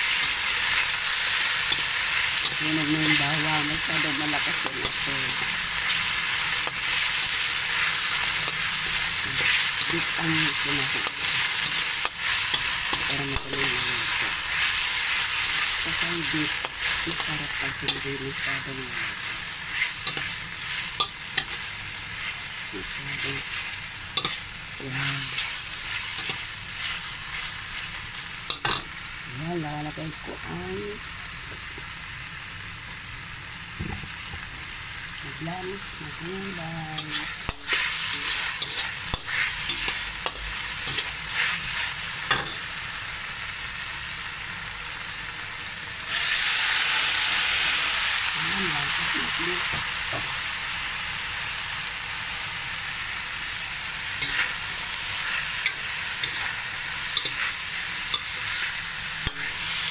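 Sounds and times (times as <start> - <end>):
food sizzling in a wok: 0.0 - 59.9
spatula stirring and scraping: 3.8 - 28.8, 37.0 - 42.6, 54.2 - 54.6, 55.2 - 59.9.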